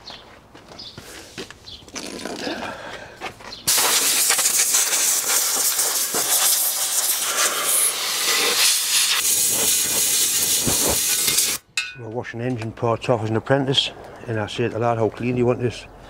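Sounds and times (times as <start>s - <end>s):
compressed air blow gun hissing: 3.7s - 11.6s.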